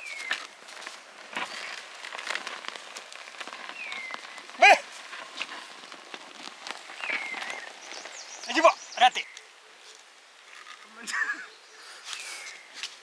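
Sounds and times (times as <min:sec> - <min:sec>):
soil crackling under a plough: 0:00.0 - 0:13.0
person shouting: 0:04.6 - 0:04.8.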